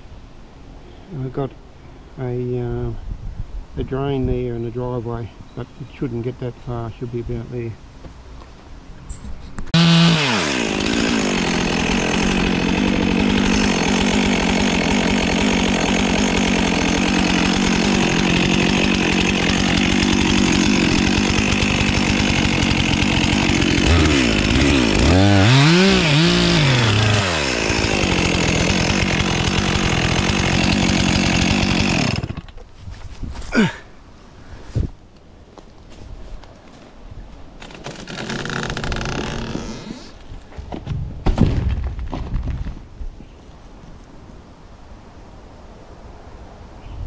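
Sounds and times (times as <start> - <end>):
chainsaw cutting tree trunk: 9.7 - 32.6, 37.6 - 40.2.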